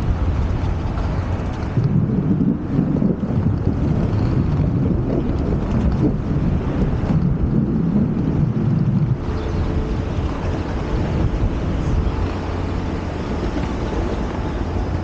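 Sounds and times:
skate wheels rolling on wooden boards: 0.3s - 9.4s.

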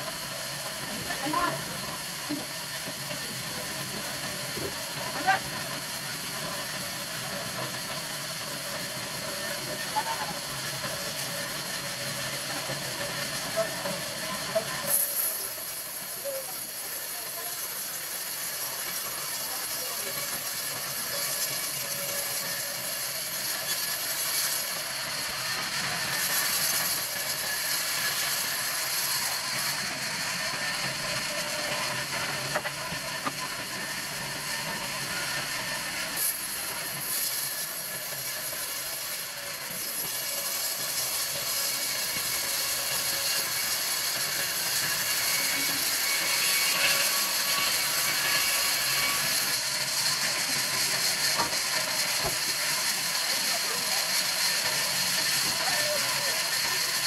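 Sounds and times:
band saw cutting log: 39.7s - 53.0s.

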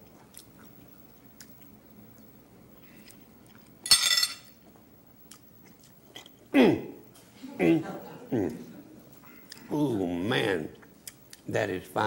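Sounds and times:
fork clinking on china plate: 3.8s - 4.5s.

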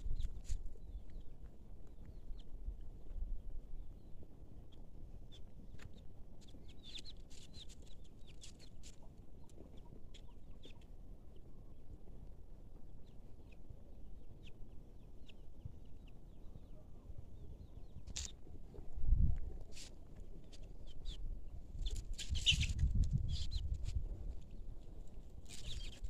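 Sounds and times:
birds chirping: 3.8s - 11.9s, 25.5s - 26.0s.

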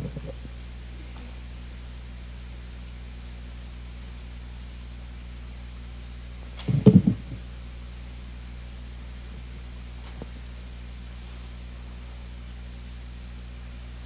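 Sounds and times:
low electrical hum: 0.0s - 14.0s
microphone handling thumps: 6.6s - 7.4s.

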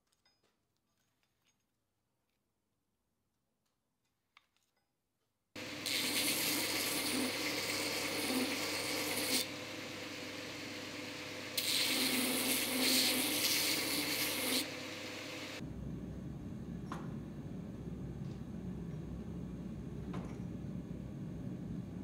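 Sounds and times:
belt grinder grinding steel: 5.6s - 15.6s
motor humming: 5.6s - 22.0s.

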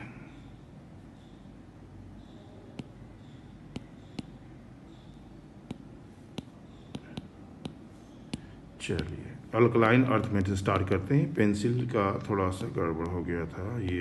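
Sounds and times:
low steady hum: 0.0s - 14.0s
taps on tablet screen: 2.2s - 9.4s, 13.0s - 14.0s.

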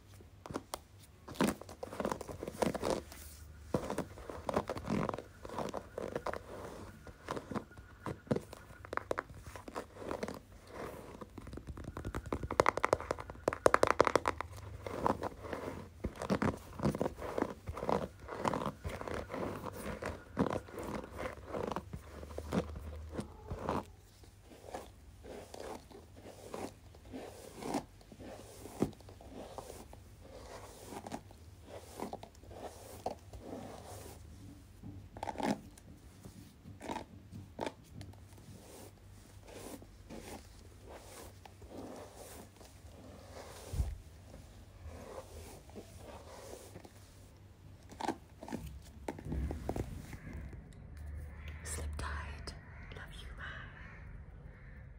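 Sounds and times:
hands rubbing near microphone: 1.4s - 34.4s, 38.4s - 47.3s.

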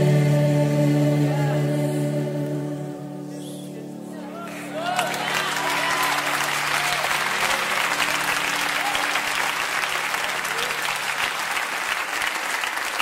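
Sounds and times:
low held musical chord: 0.0s - 10.4s
voices cheering: 4.4s - 11.4s
crowd applauding: 4.4s - 13.0s.

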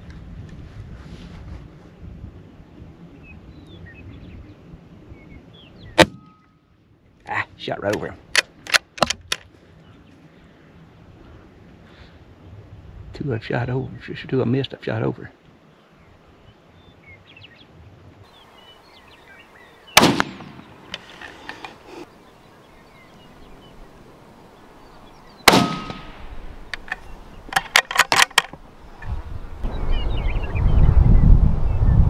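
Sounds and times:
rifle shots: 6.0s - 6.4s, 20.0s - 20.8s, 25.4s - 26.3s
rifle bolt clicks: 7.9s - 9.5s
low rumbling noise: 28.6s - 32.0s.

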